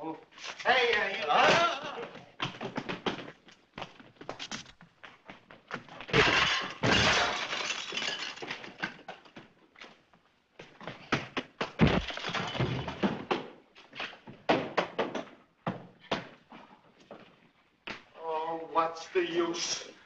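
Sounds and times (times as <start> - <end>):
glass crashing and breaking: 6.1 - 9.0, 11.8 - 13.0
knocks and clatter: 11.1 - 13.5.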